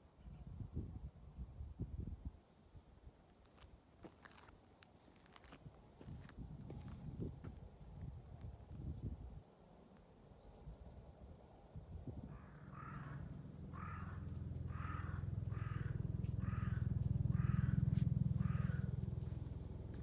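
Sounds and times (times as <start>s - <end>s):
crow cawing: 12.3s - 19.3s.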